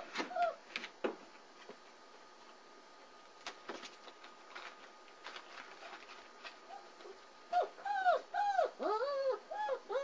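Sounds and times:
puppy whining: 0.1 - 0.6, 6.6 - 10.0.

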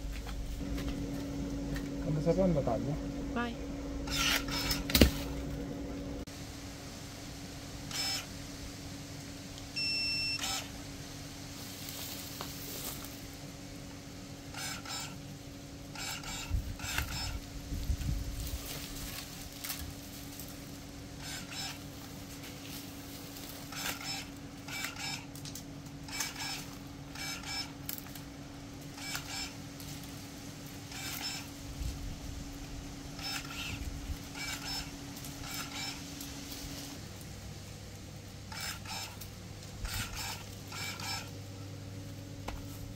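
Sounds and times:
pruning shears motor whirring: 0.0 - 6.3, 7.8 - 8.6, 9.5 - 37.6, 38.3 - 42.9
electronic beep: 9.8 - 10.4.

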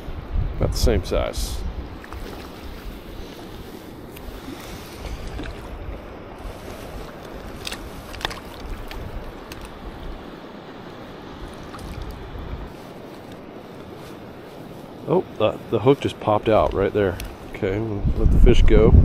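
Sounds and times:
wind rumble on microphone: 0.0 - 19.0
water lapping: 1.6 - 18.0
fish splashing: 1.9 - 15.0.

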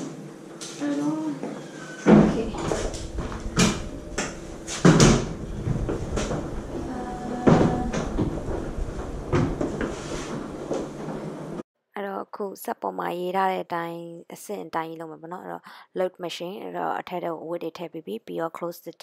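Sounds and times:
washing machine door knocking: 2.1 - 9.8.

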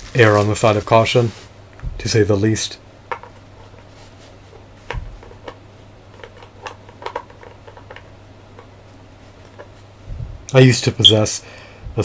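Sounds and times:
steady low hum: 0.0 - 12.0
plastic parts clicking and tapping: 3.1 - 3.4, 4.9 - 8.7.

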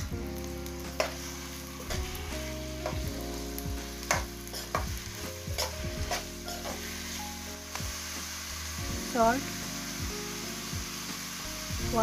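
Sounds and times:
onions sizzling in oil: 0.0 - 12.0
utensil scraping a pan: 4.0 - 7.2.

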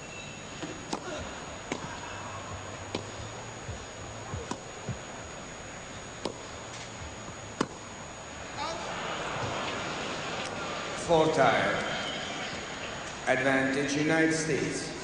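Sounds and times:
tennis ball struck by racket: 0.6 - 2.0, 2.9 - 5.1, 6.2 - 7.9.

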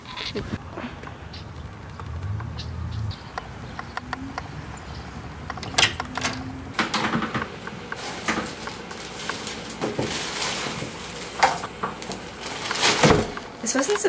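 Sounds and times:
door latch clicks and knocks: 5.5 - 7.1
plastic package rustling: 7.5 - 14.0.

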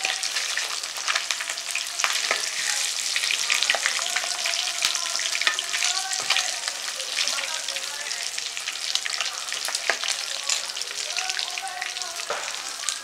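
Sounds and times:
metal spatula stirring: 0.0 - 7.9, 8.6 - 10.8
hot oil sizzling and crackling: 0.0 - 13.0.

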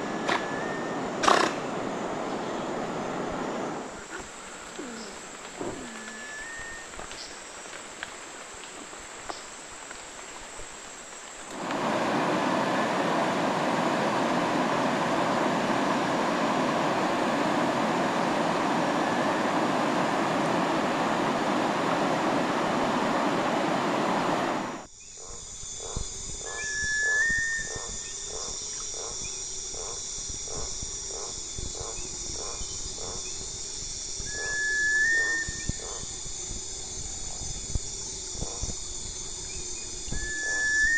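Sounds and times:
bird's long rising whistle: 0.0 - 1.6, 5.8 - 7.4, 18.0 - 20.5, 26.4 - 29.4, 31.9 - 40.9
high insect trills: 0.0 - 40.9
rushing river rapids: 11.6 - 24.8.

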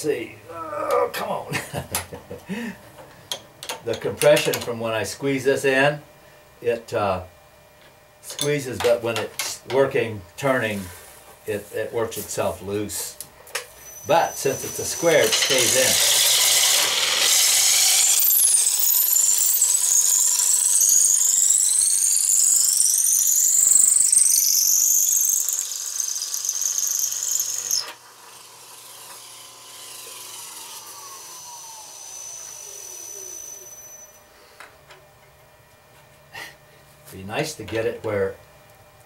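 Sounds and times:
blade shaving wood with high squeal: 13.7 - 34.2
lathe running down: 13.8 - 34.2.

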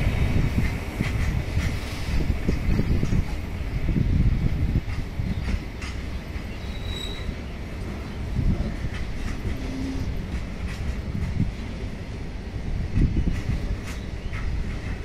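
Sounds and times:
freight train rumbling past: 0.0 - 15.0
wheels clacking over rail joints: 0.0 - 15.0.

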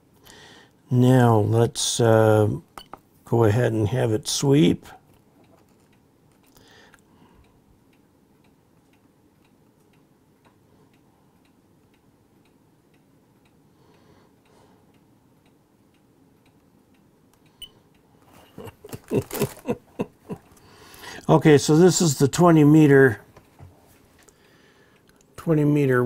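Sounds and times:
room hiss: 0.0 - 5.1, 6.6 - 26.0
faint regular ticking: 4.3 - 26.0.

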